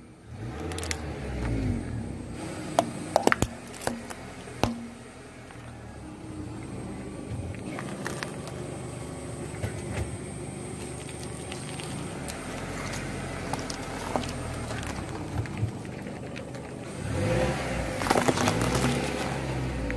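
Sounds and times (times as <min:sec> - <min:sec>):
car engine running: 0:00.0 - 0:19.9
fruit cracking and popping: 0:00.5 - 0:01.6, 0:02.7 - 0:05.6, 0:10.7 - 0:19.9.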